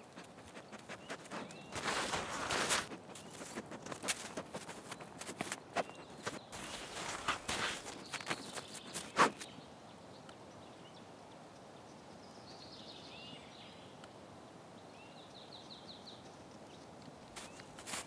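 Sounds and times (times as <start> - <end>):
faint bird chirps: 0.0 - 13.9.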